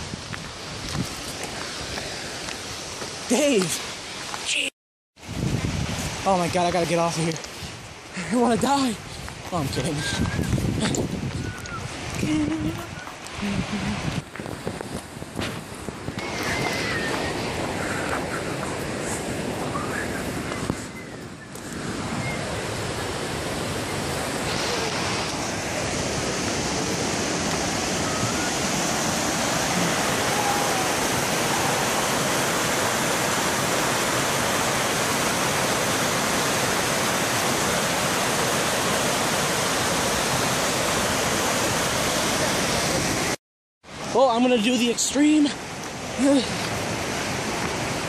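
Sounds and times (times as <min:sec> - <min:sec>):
waterfall rushing: 0:16.2 - 0:20.7, 0:21.6 - 0:48.0.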